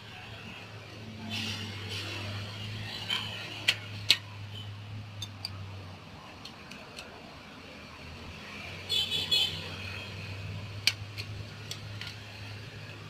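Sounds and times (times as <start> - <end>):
metallic clicks of tools on brake parts: 3.1 - 4.3, 5.1 - 5.6, 6.4 - 7.2, 10.8 - 12.3.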